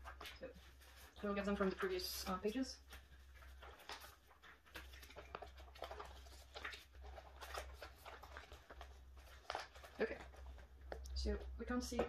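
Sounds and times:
plastic sleeves rustling: 0.0 - 12.0.

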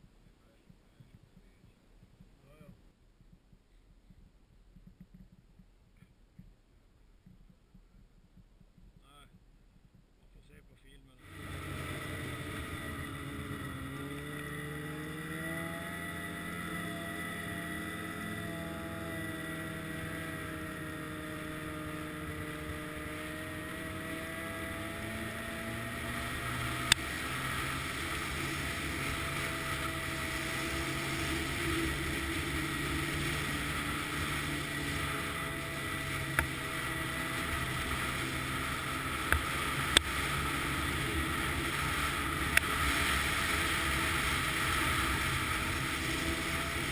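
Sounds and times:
snowmobile engine running: 11.2 - 46.9.

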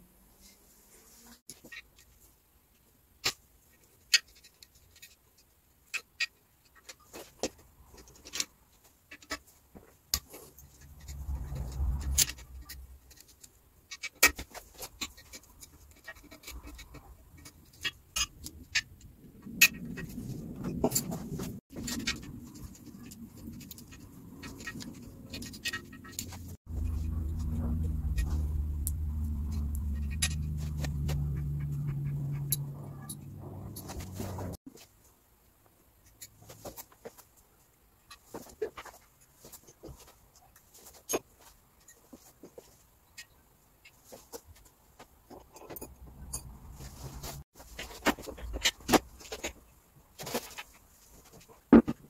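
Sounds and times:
low handling rumble: 26.4 - 34.6.

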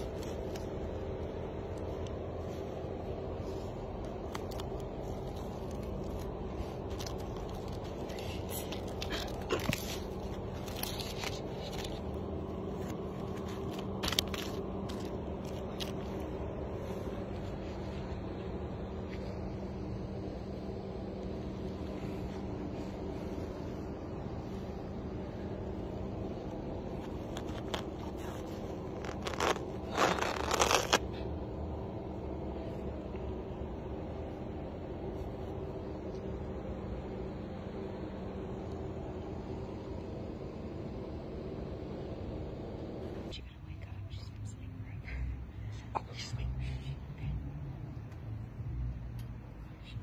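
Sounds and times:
steady low hum: 0.0 - 50.0
duct tape crackling as torn: 4.1 - 12.2, 12.8 - 16.2, 27.0 - 31.1.

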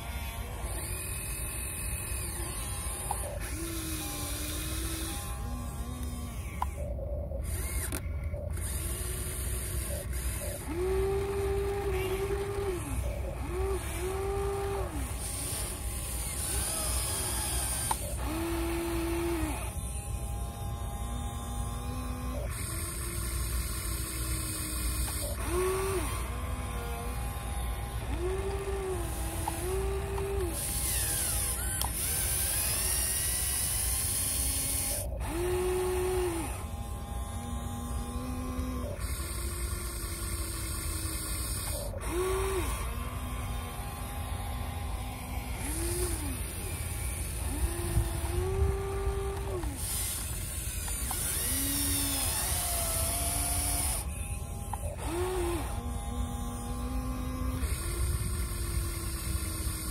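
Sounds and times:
electric motors whining: 0.0 - 59.9
low steady rumble: 0.0 - 59.9.

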